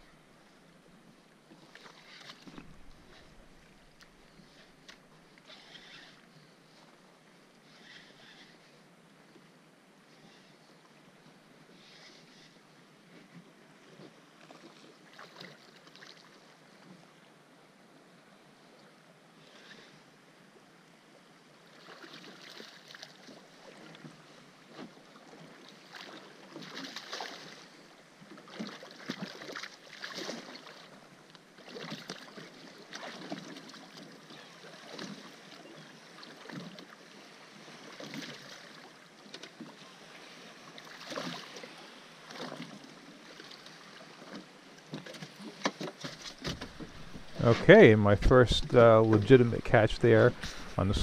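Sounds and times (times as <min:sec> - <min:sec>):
water splashing at boat side: 0:24.7 - 0:27.7, 0:28.3 - 0:31.0, 0:31.6 - 0:37.0, 0:37.8 - 0:39.8, 0:40.7 - 0:51.0.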